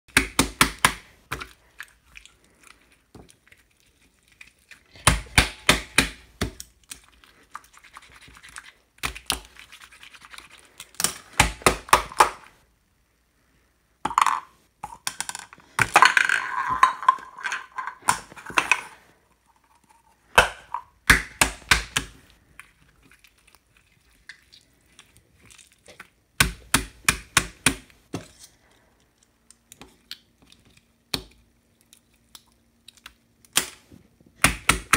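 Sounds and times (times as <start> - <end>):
slime squelching: 0.2 - 12.1, 18.0 - 27.3.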